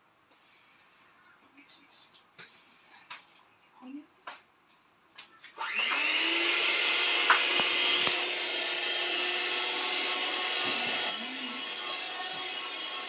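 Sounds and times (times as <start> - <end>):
electric mixer motor whine: 5.6 - 13.0.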